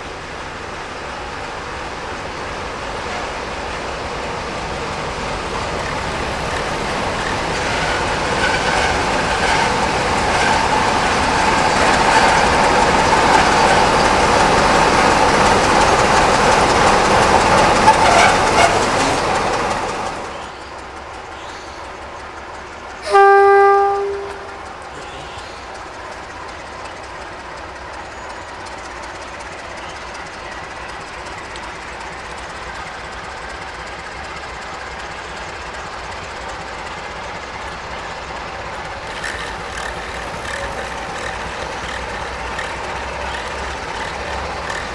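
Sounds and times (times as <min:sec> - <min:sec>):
diesel locomotives passing: 0:00.0 - 0:44.9
train horn: 0:23.0 - 0:25.4.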